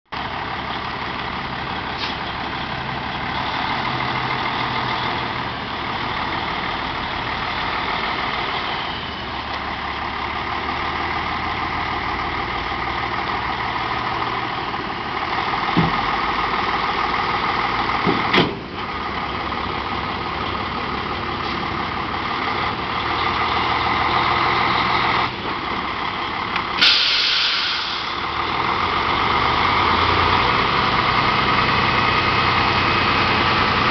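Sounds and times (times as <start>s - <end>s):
diesel truck engine running: 0.1s - 33.9s
sharp clunks: 18.0s - 18.6s
air hiss: 26.8s - 28.2s.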